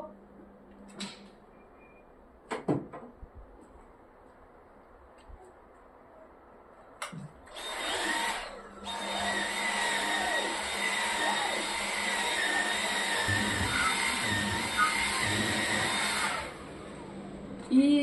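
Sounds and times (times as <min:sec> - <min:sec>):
stick vacuum motor whining: 0:07.5 - 0:17.4.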